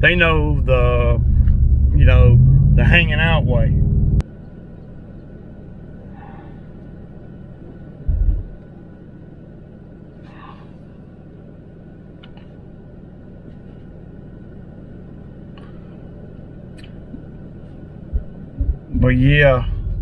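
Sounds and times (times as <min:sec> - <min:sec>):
road rumble in truck cab: 0:00.0 - 0:20.0
loud low thump: 0:08.1 - 0:08.6.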